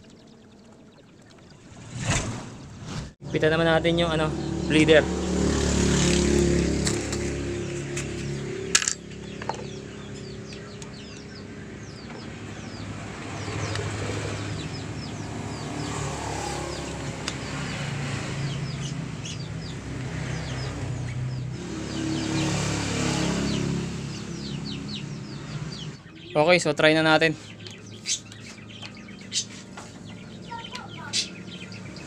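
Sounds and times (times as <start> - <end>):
high bird chirps: 0.0 - 2.8, 7.6 - 32.0
lower bird calls: 7.6 - 32.0.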